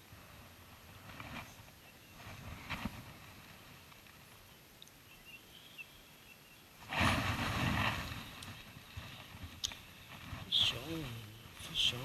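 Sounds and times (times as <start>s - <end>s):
faint outdoor background: 0.0s - 12.0s
microphone handling rumble: 6.8s - 12.0s.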